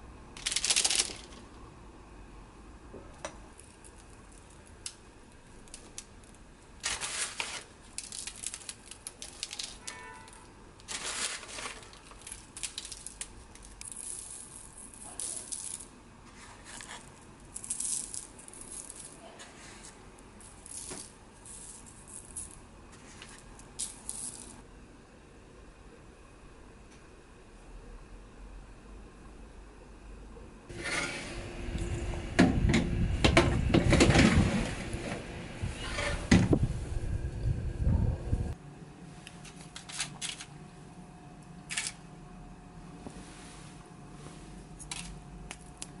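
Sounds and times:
crumbs crackling on paper: 3.7s - 10.0s.

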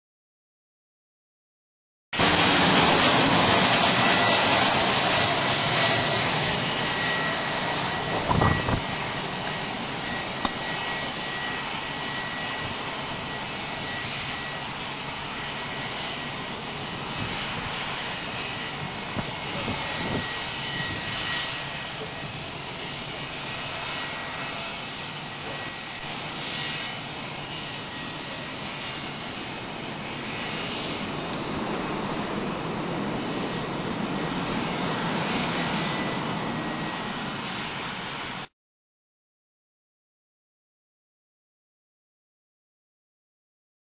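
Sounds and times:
jet engines whining: 2.2s - 38.5s.

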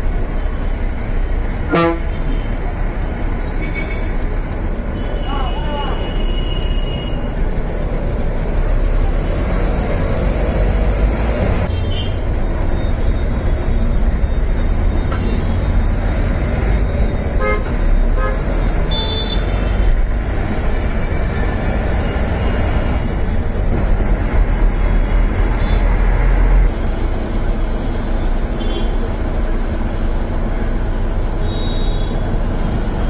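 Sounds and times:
bus engine and road rumble: 0.0s - 33.0s
traffic horn toots: 1.7s - 2.5s, 5.0s - 7.2s, 11.7s - 12.2s, 17.4s - 19.9s, 28.6s - 29.0s, 31.4s - 32.3s.

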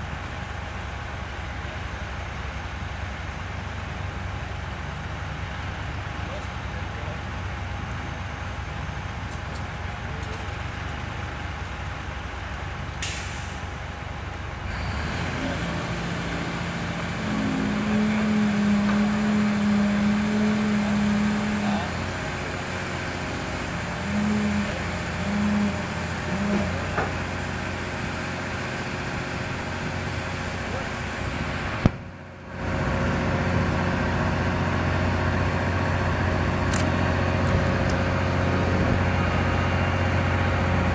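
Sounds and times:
excavator diesel engine running: 0.0s - 40.9s
hydraulic pulses: 15.2s - 21.9s, 23.8s - 27.4s.

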